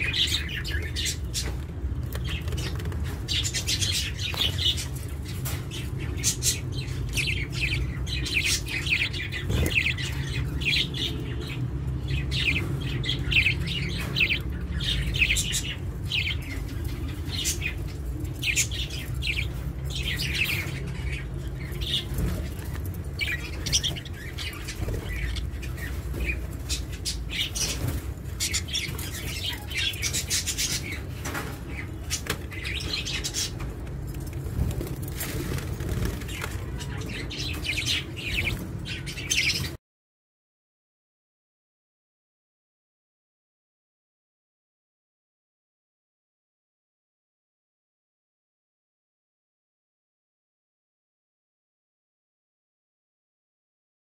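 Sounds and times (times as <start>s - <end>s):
budgies chirping: 0.0s - 39.8s.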